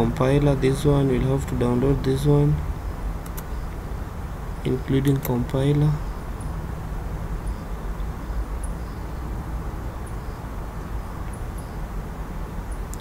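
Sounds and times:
low rumble and hiss: 0:00.0 - 0:13.0
faint high ticks: 0:12.7 - 0:13.0.

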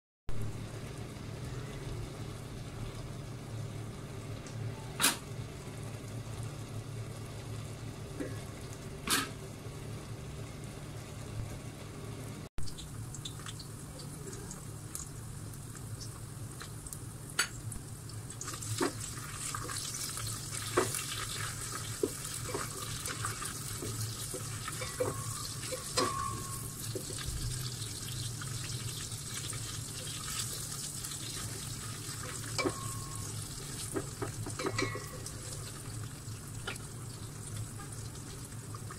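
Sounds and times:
low steady hum: 0:00.3 - 0:38.9
shallots sizzling in hot oil: 0:12.6 - 0:38.9.

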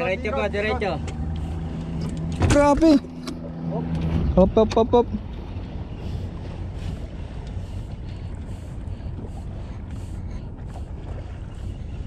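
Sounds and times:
soft water splashes: 0:00.0 - 0:12.0.

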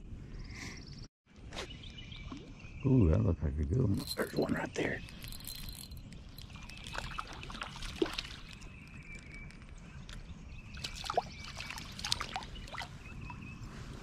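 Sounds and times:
water splashing and dripping: 0:05.1 - 0:13.4.

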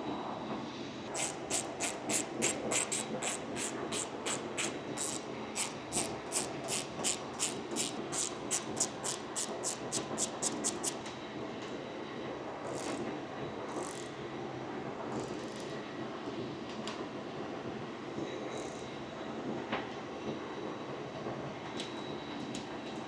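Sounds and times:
ratchet wrench clicking: 0:01.2 - 0:11.0.

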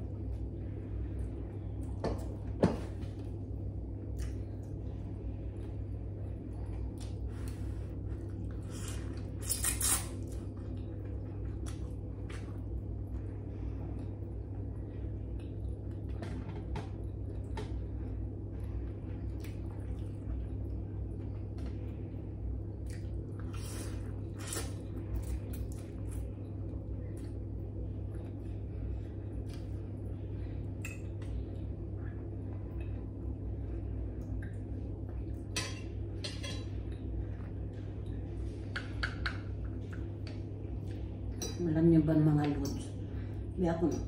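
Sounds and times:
steady low hum: 0:00.0 - 0:44.0
cutlery scraping a ceramic bowl: 0:35.6 - 0:36.7.

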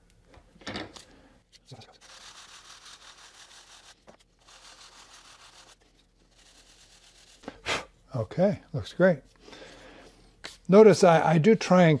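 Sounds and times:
sanding block scrubbing wood: 0:02.0 - 0:07.4.

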